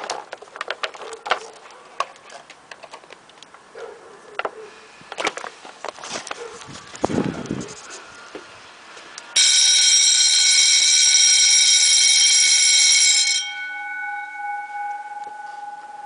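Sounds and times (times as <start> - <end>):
electric fire alarm bells ringing: 9.4 - 16.0.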